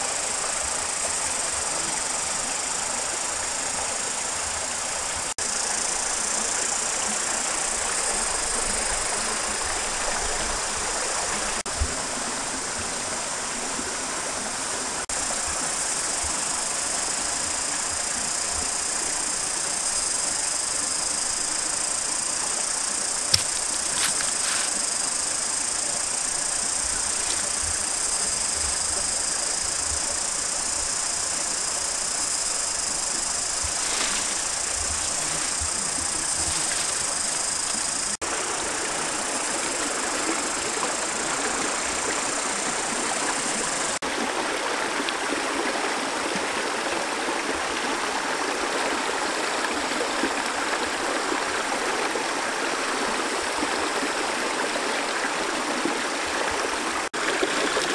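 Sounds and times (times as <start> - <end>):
high-pitched insect drone: 0.0 - 11.6, 14.4 - 44.0
stream water over rocks: 0.0 - 57.9.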